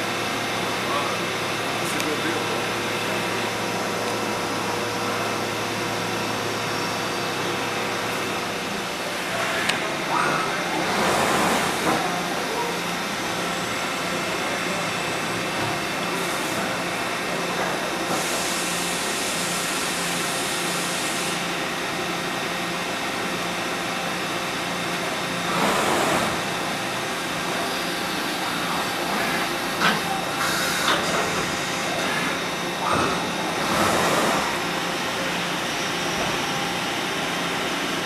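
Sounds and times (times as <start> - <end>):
coolant spraying hiss: 18.2 - 21.4.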